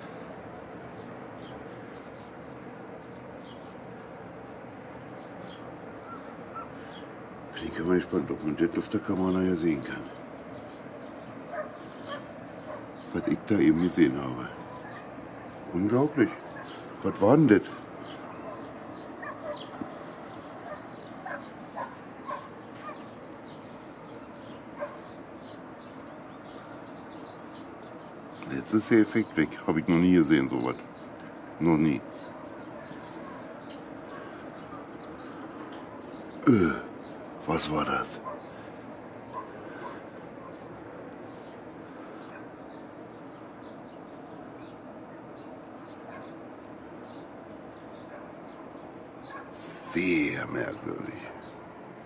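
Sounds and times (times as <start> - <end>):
faint bird chirps: 0.0 - 8.6, 9.7 - 46.4, 47.0 - 51.6
steady outdoor hiss: 0.0 - 52.0
high bird chirps: 14.2 - 28.5.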